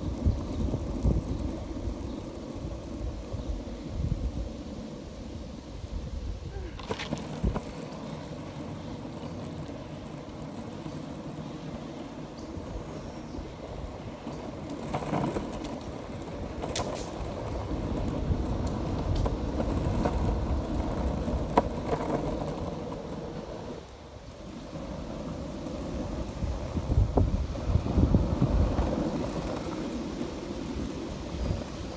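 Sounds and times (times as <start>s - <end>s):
wheels rolling over asphalt: 0.0s - 31.9s.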